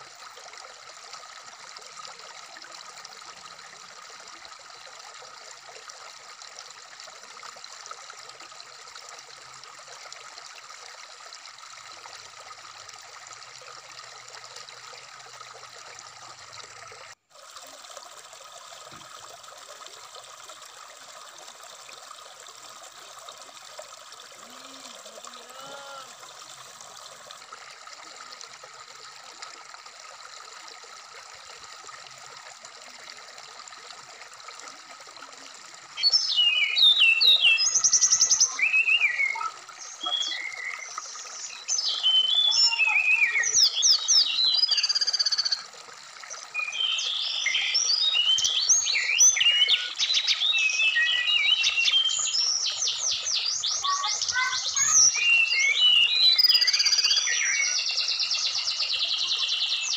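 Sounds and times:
stream babbling over rocks: 0.0 - 59.9.

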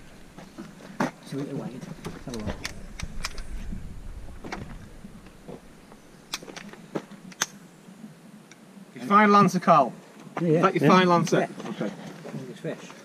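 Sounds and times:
wind rumble on microphone: 1.9 - 6.0.

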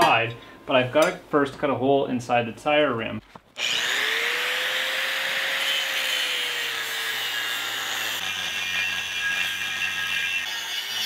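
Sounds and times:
angle grinder cutting steel: 3.6 - 11.0.

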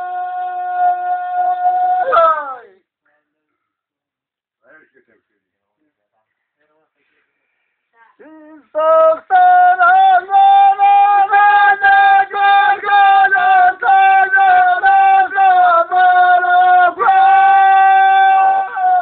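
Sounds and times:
high voice singing: 0.0 - 2.6, 8.2 - 19.0.

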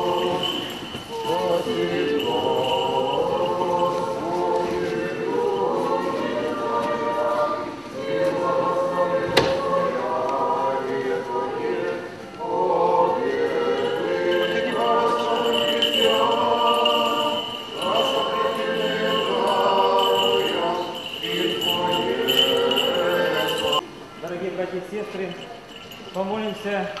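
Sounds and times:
choir singing a slow chant: 0.0 - 23.8.

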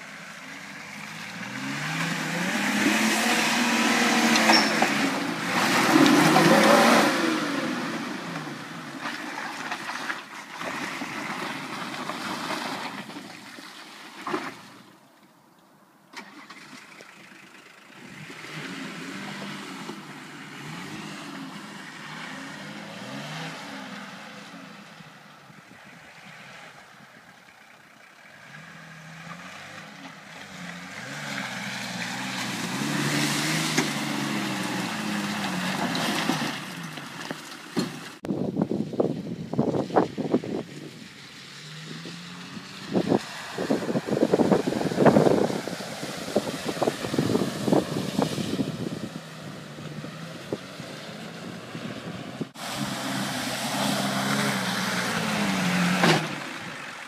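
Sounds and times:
diesel engine revving under load: 0.8 - 9.0, 16.2 - 25.0, 28.2 - 37.1, 41.5 - 57.0.

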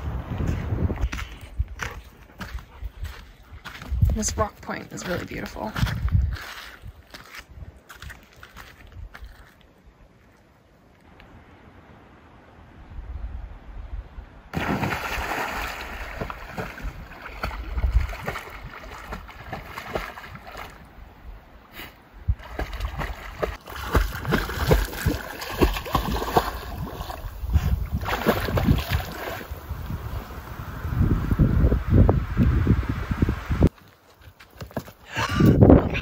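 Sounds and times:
dog splashing into water: 14.6 - 20.8, 22.4 - 29.6
dog paddling through water: 15.6 - 20.9, 22.4 - 29.5.

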